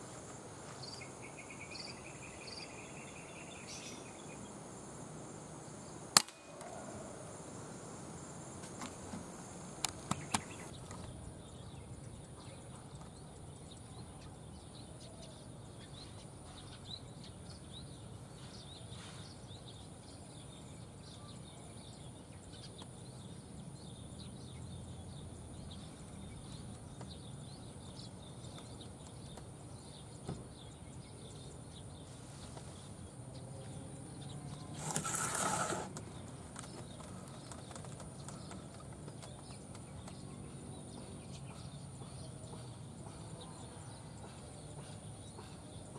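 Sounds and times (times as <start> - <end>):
crickets chirping: 0.0 - 45.9
air rifle shot: 6.1 - 6.7.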